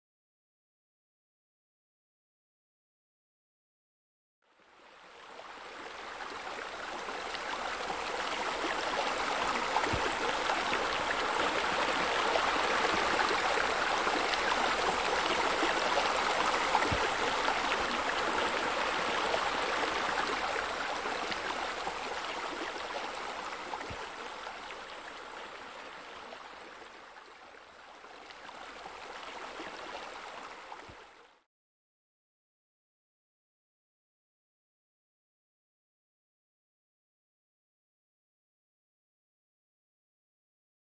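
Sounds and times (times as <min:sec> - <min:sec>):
running water rushing: 0:05.2 - 0:31.2.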